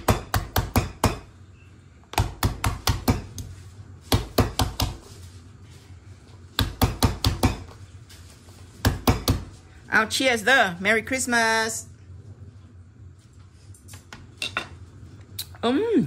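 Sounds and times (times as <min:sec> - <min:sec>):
mallet pounding on cutting board: 0:00.0 - 0:01.2, 0:02.2 - 0:03.4, 0:04.1 - 0:05.0, 0:06.6 - 0:07.7, 0:08.8 - 0:09.5.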